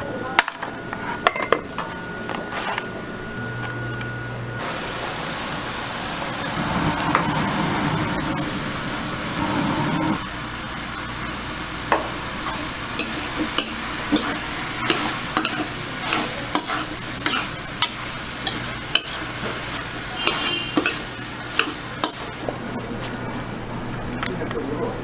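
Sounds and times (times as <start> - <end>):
cabbage sizzling in a wok: 10.2 - 22.4
utensil scraping metal pan: 20.2 - 22.2.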